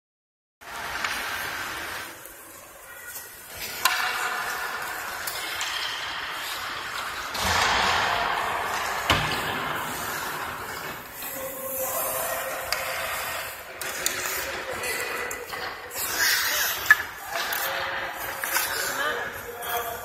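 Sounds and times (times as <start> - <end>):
hockey sticks clattering: 0.8 - 20.0
skates scraping on ice: 8.6 - 20.0.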